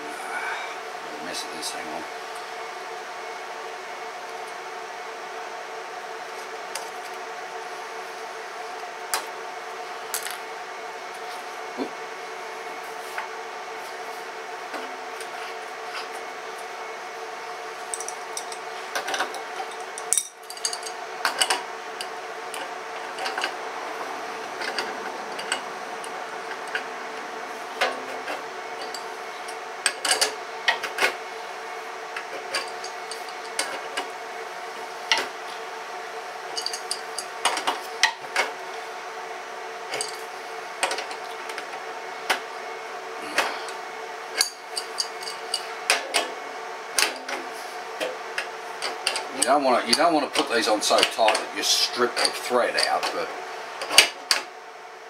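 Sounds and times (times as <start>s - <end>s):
steady hum: 0.0s - 55.0s
spanner clinking on metal fittings: 17.9s - 22.6s, 36.6s - 37.4s, 44.4s - 45.7s.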